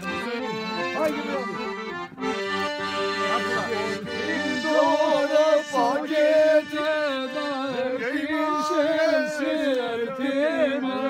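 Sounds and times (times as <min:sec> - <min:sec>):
piano accordion playing a tune: 0:00.0 - 0:09.4.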